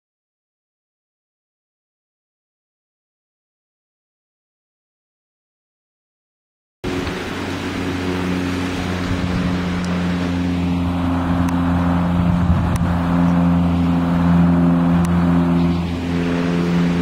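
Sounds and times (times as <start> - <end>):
propeller aeroplane flying overhead: 6.8 - 17.0.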